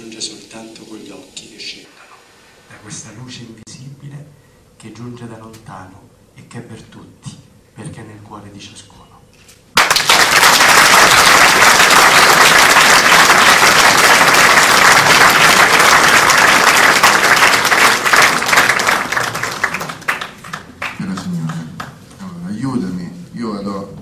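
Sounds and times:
audience applauding: 0:09.8 - 0:22.0.

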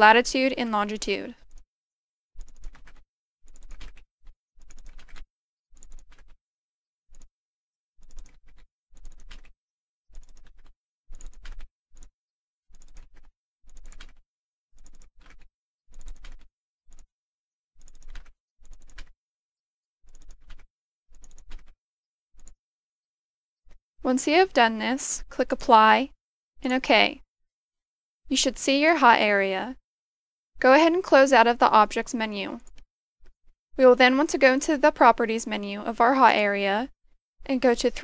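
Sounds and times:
keyboard typing: 0:02.4 - 0:04.0, 0:04.6 - 0:06.4, 0:07.1 - 0:07.3, 0:08.0 - 0:12.1, 0:12.7 - 0:14.2, 0:14.8 - 0:17.1, 0:17.8 - 0:19.2, 0:20.1 - 0:21.8, 0:30.6 - 0:32.8, 0:33.8 - 0:36.9.

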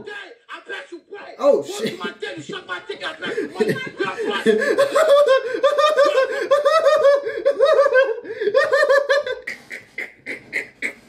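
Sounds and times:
man laughing hard: 0:01.7 - 0:09.5
soft gasps: 0:06.3 - 0:06.5, 0:07.2 - 0:07.5, 0:08.2 - 0:08.5.

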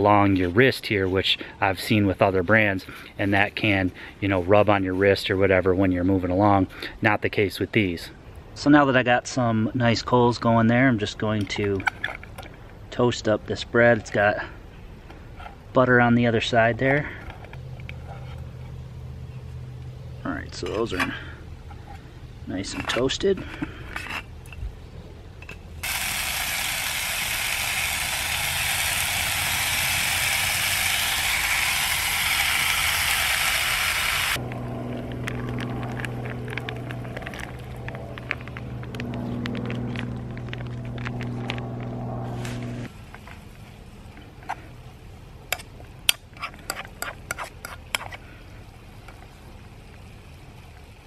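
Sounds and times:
meat sizzling in frying pan: 0:25.8 - 0:34.4
metal spoon scraping a pan: 0:46.3 - 0:48.2.

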